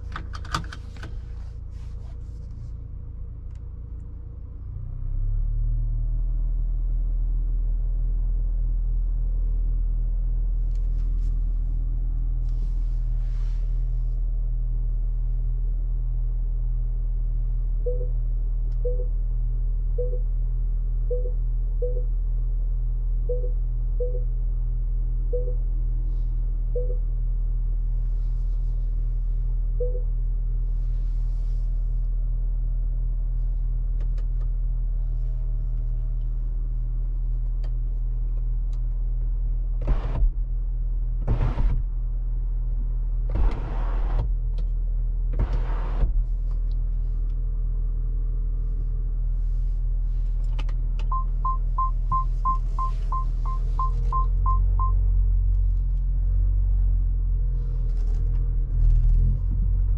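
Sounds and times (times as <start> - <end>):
parking sensor beeps: 17.8 - 18.2, 18.8 - 19.2, 20.0 - 20.3, 21.1 - 22.1, 23.3 - 24.3, 25.3 - 25.6, 26.8 - 27.0, 29.8 - 30.1, 51.0 - 55.0
car engine humming: 25.3 - 59.9.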